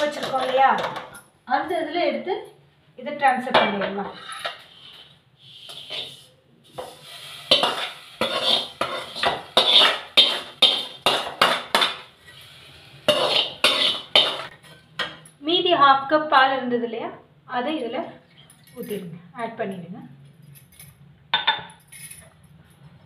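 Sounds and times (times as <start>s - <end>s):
ladle scraping metal pans: 0.0s - 0.9s, 3.9s - 12.5s, 13.1s - 15.0s.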